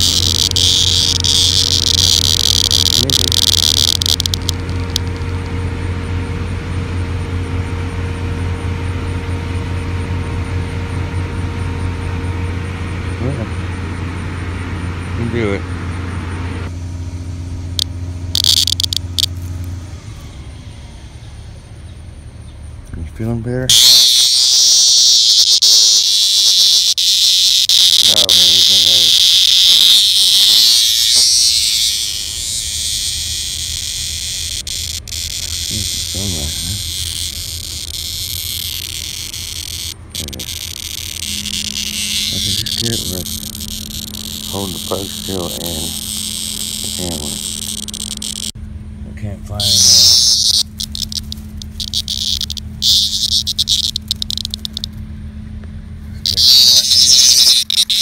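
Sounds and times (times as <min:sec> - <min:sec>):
cicada buzzing: 0:00.0 - 0:55.2, 0:56.2 - 0:58.0
faint steady tones: 0:00.0 - 0:58.0
low mechanical hum: 0:00.0 - 0:58.0
faint high pulses: 0:23.7 - 0:48.6, 0:49.4 - 0:54.9, 0:56.3 - 0:58.0.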